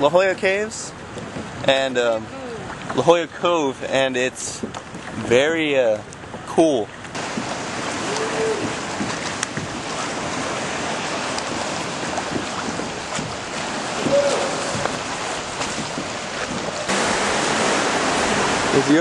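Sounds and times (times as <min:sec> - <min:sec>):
wind on microphone: 0:00.9 - 0:03.0, 0:07.1 - 0:19.0
ocean swell washing against rocks: 0:07.2 - 0:19.0.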